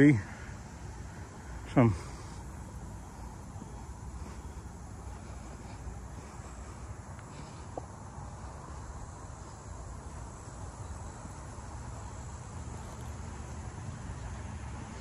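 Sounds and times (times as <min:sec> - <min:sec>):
insect chorus: 0:00.0 - 0:15.0.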